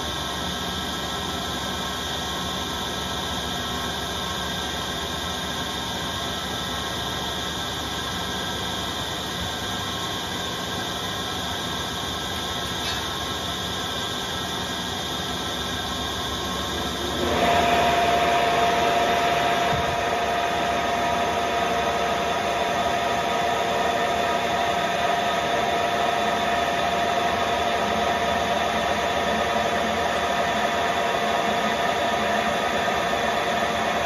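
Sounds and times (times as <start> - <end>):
lathe running: 2.0 - 34.0
steady whining tone: 12.3 - 34.0.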